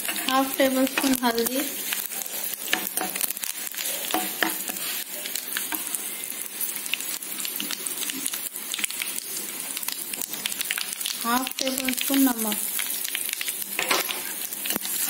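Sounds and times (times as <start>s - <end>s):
metal spoon stirring: 0.0s - 1.2s, 1.9s - 5.9s, 13.8s - 15.0s
oil sizzling and crackling in a pan: 0.0s - 15.0s.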